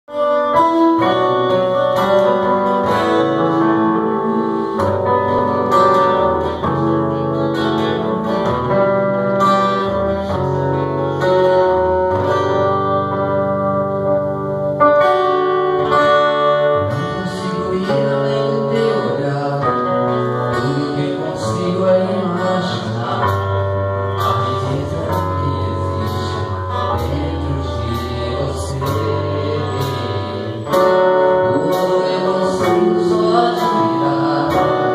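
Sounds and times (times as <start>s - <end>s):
acoustic guitar: 0.0s - 34.9s
keyboard: 0.0s - 34.9s
man singing: 0.8s - 8.1s, 16.6s - 34.9s.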